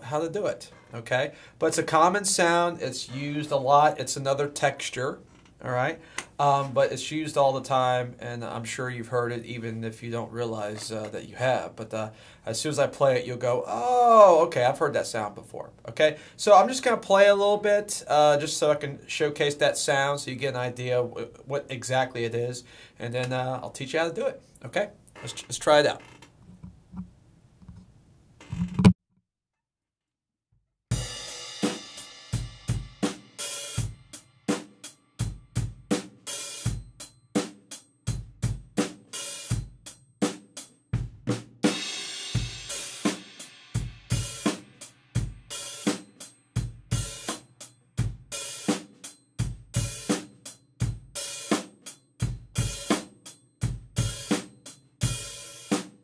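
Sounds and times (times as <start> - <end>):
open hi-hat hiss: 0.0 - 26.0, 30.9 - 56.0
drum kit playing beat: 10.5 - 12.8, 30.9 - 56.0.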